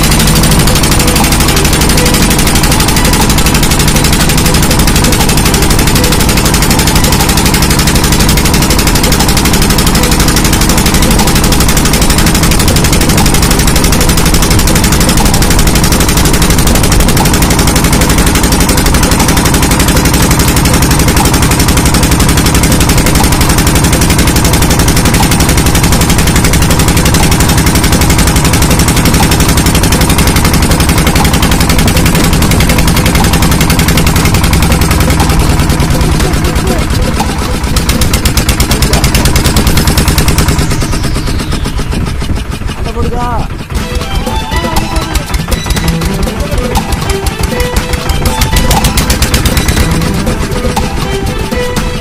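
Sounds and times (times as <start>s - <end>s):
motor boat engine chugging: 0.0s - 52.0s.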